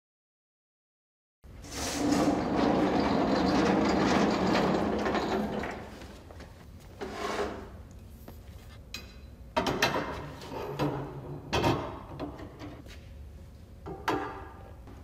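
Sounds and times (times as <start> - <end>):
metal pole scraping on concrete: 1.6 - 5.9, 7.0 - 7.8.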